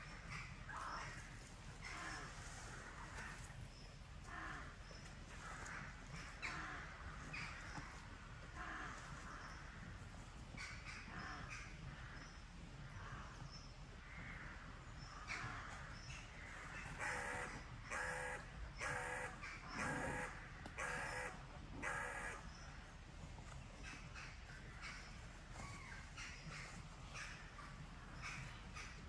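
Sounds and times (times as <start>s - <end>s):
crow cawing: 17.0s - 22.4s.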